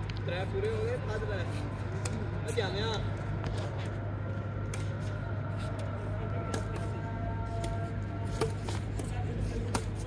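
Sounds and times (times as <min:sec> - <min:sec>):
steady low hum: 0:00.0 - 0:10.0
rackets hitting shuttlecock: 0:04.6 - 0:05.2, 0:05.8 - 0:07.0, 0:07.6 - 0:10.0.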